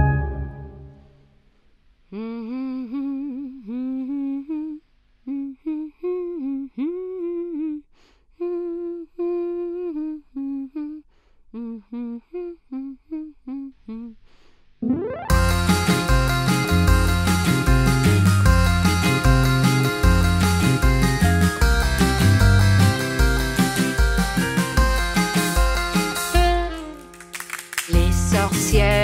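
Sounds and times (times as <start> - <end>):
woman humming: 2.1 - 14.4.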